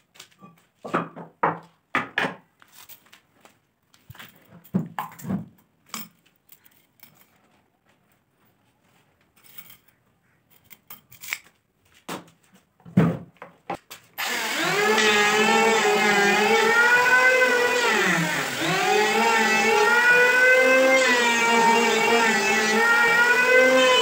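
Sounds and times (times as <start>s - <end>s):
electric planer whining on wood: 14.2s - 24.0s.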